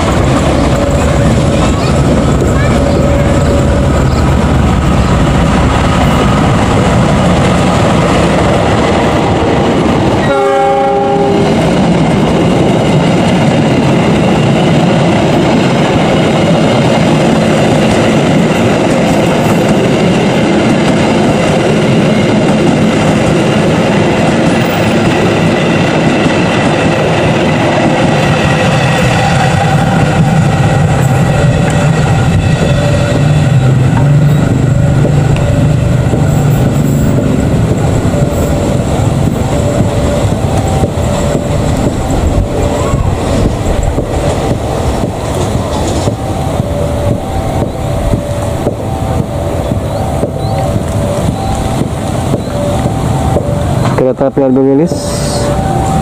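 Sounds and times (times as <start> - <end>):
train rumbling past on rails: 0.0 - 56.0
train horn blast: 10.2 - 11.7.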